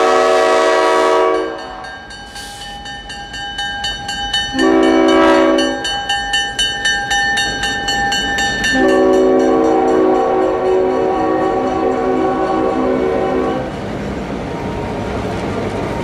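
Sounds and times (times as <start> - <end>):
locomotive air horn: 0.0 - 2.6, 4.6 - 5.8, 8.7 - 13.7
bell clanging: 1.6 - 12.5.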